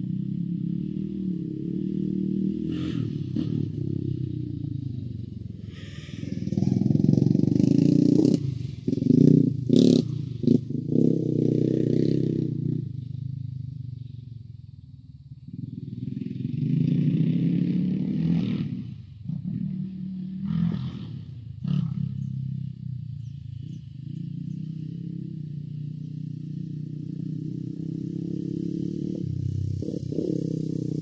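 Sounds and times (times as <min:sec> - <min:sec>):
atv engine revving: 0:00.0 - 0:13.9, 0:15.4 - 0:31.0.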